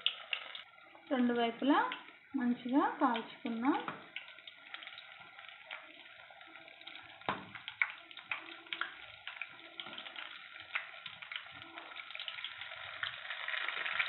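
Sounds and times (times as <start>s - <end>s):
sharp crack from frying oil: 0.0s - 0.7s, 3.1s - 6.0s, 6.9s - 14.0s
food sizzling in hot oil: 0.0s - 14.0s.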